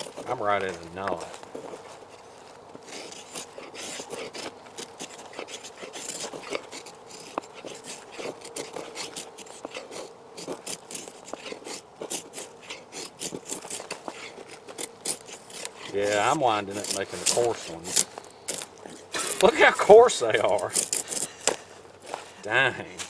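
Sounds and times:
knife scraping wood: 0.0s - 23.0s.

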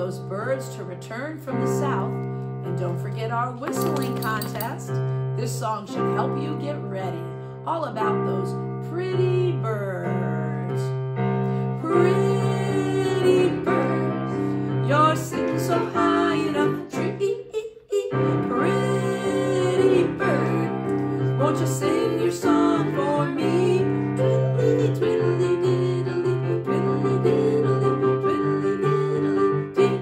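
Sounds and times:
woman singing children's song: 0.0s - 11.0s, 11.8s - 27.4s
electronic keyboard piano chords: 18.2s - 30.0s.

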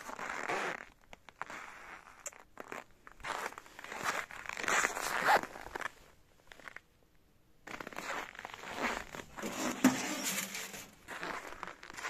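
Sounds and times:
footsteps crunching in snow: 7.7s - 12.0s.

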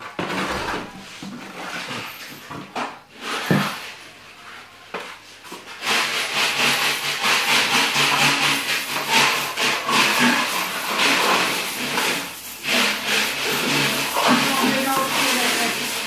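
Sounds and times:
trowel scraping wet plaster: 5.6s - 16.0s.

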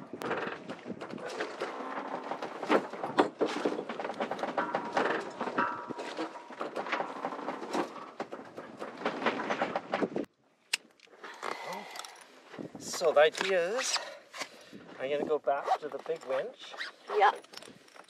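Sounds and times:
rigging clicks and knocks: 0.2s - 11.4s.

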